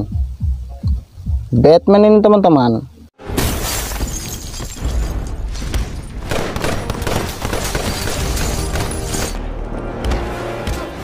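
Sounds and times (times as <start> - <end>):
glass shattering: 3.2 - 9.4.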